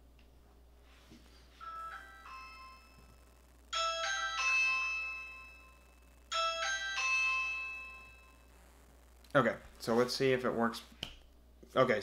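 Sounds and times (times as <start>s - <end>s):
doorbell ding-dong chime: 1.6s - 8.4s.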